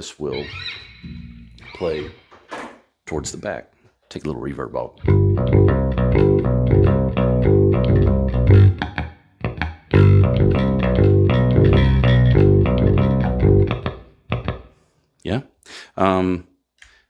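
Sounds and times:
picked bass guitar lead line: 5.0s - 14.7s.

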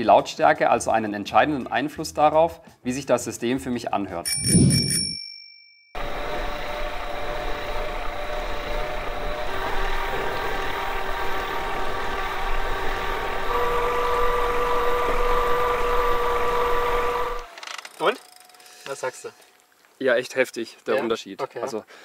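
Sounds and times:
electric bike motor humming and whining: 6.0s - 18.8s.

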